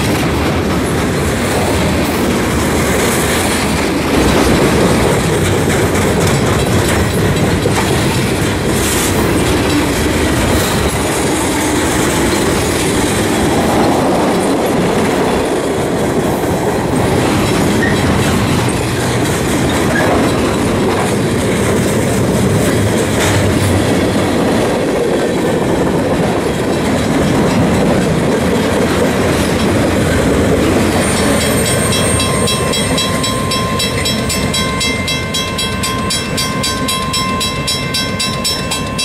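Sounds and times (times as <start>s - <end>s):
freight train wheels on rail: 0.0s - 39.0s
crossing bell ringing rapidly: 29.5s - 39.0s.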